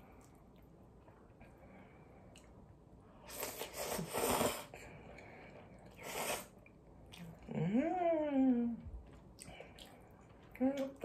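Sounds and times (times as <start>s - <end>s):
person slurping noodles: 3.2s - 4.8s, 5.9s - 6.6s.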